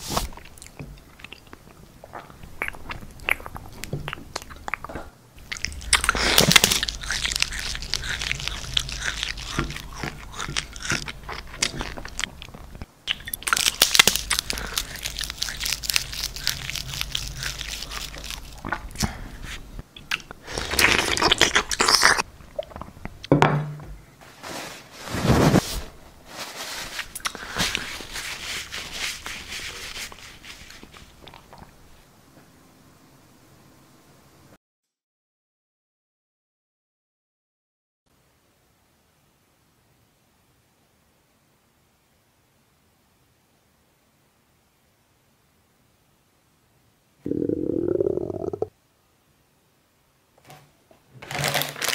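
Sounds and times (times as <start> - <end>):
crunching bites and chewing: 0.2 - 19.2, 20.1 - 22.3
cloth napkin rubbing a plate: 24.2 - 31.0.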